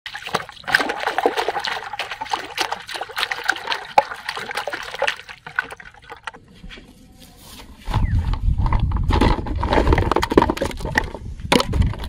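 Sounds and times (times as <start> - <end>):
plastic bottles splashing into water: 0.1 - 6.4, 8.7 - 12.0
water dripping: 0.1 - 6.4.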